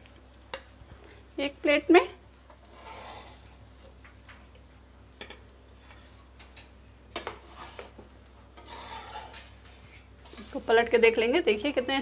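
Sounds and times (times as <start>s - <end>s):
steel spatula scraping on griddle: 2.4s - 3.9s, 5.2s - 6.6s, 7.2s - 10.9s.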